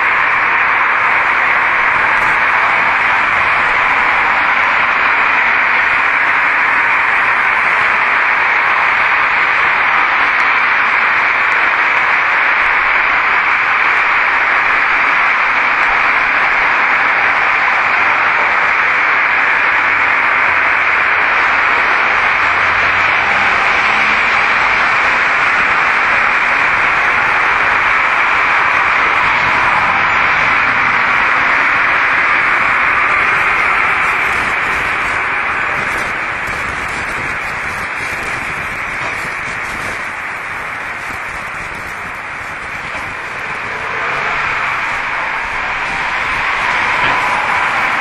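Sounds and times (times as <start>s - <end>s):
steady hiss of noise: 0.0s - 48.0s.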